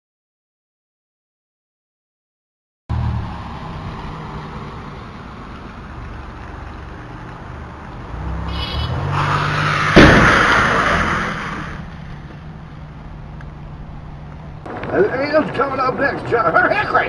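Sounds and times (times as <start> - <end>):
tyre and engine noise: 2.9 - 17.0
car crash: 8.4 - 12.7.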